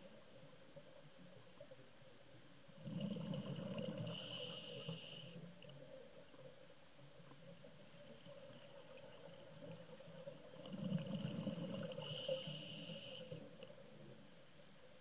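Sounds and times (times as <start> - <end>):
faint underwater hum: 0.0 - 15.0.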